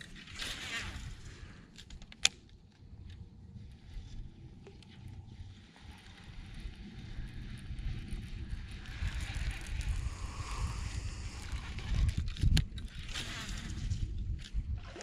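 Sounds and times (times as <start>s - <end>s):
wind buffeting microphone: 3.3s - 15.0s.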